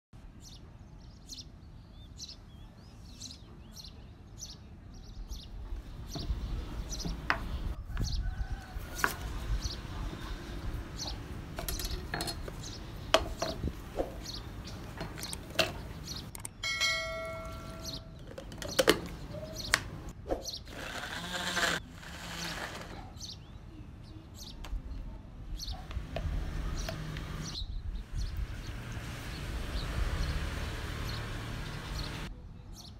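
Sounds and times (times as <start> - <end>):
bird chirps: 14.1 - 19.8.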